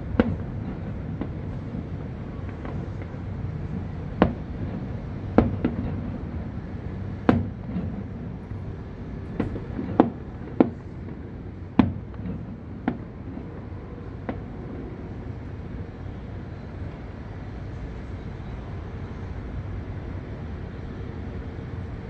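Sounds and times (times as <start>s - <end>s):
fireworks bursting with bangs: 0.0s - 16.2s
low background rumble: 0.0s - 22.0s.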